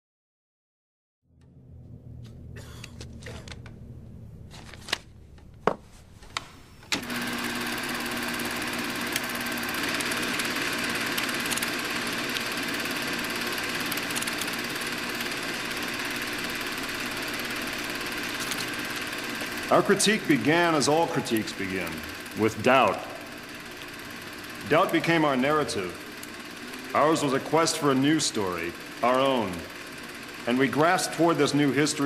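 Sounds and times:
film projector clattering: 6.4 - 32.0
sharp clicks: 11.1 - 12.5, 13.9 - 14.6.

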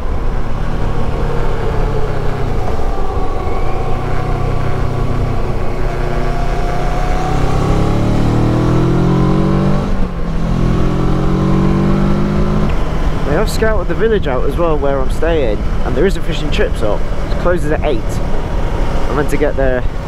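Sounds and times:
wind rush on microphone: 0.0 - 7.7
motorcycle engine accelerating: 0.0 - 20.0.

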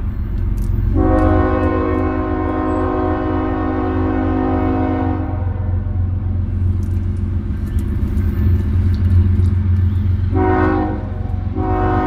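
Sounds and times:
diesel locomotives rumbling: 0.0 - 12.0
train air horn blasts: 0.9 - 5.9, 10.3 - 12.0.

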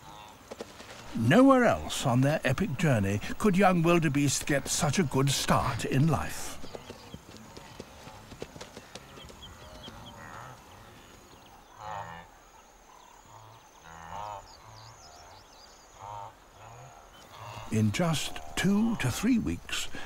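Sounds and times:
wildebeest grunting calls: 11.7 - 20.0.

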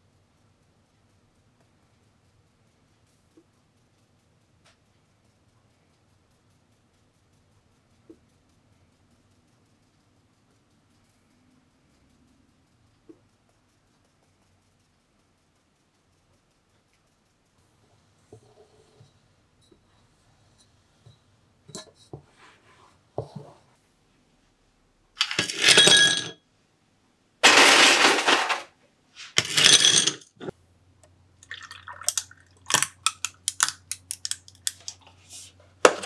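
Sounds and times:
ice clinking and crackling: 25.2 - 26.3, 27.4 - 28.7, 31.4 - 35.0
ice cubes clattering into glass: 25.2 - 26.3, 27.4 - 28.7, 29.4 - 30.3, 31.4 - 33.8
milk pouring: 31.4 - 33.0.

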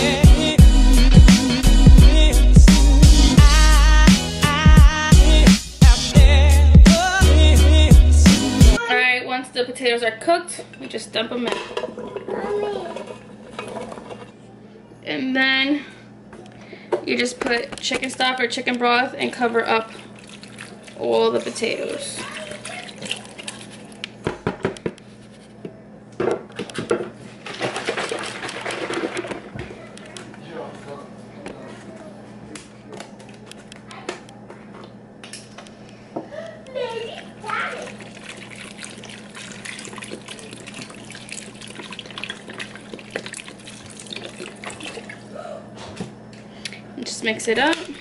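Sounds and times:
broth pouring into a metal pot: 37.9 - 45.2.

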